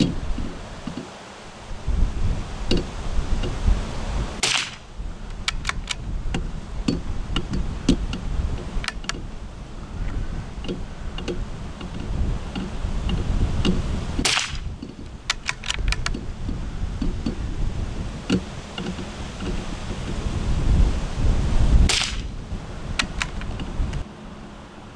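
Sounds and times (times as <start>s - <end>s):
rifle shots: 4.4s - 4.9s.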